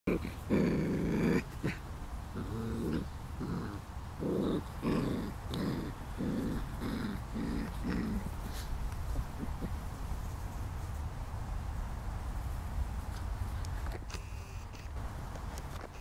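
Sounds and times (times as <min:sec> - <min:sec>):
puppies play-growling: 0:00.1 - 0:10.3.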